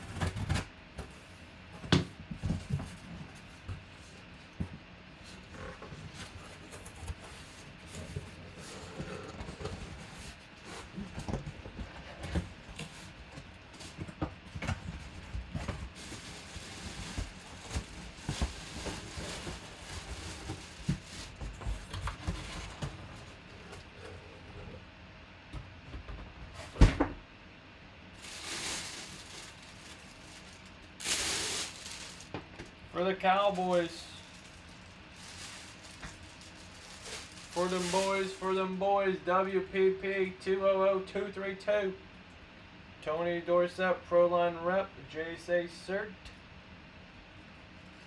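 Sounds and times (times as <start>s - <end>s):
plastic bag crinkling: 15.9s - 21.6s, 28.2s - 32.4s, 33.3s - 38.4s.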